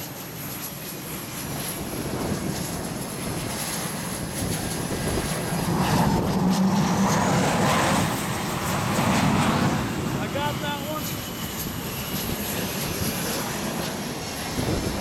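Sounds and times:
jet engine roar: 0.0 - 15.0
faint rising whine: 4.8 - 15.0.

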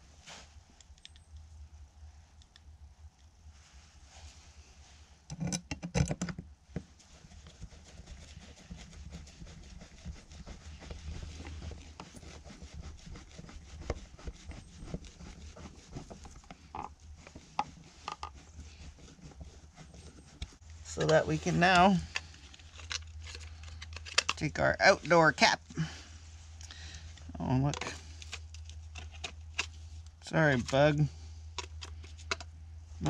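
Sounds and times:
screwdriver scratchy rubbing: 7.2 - 25.3.

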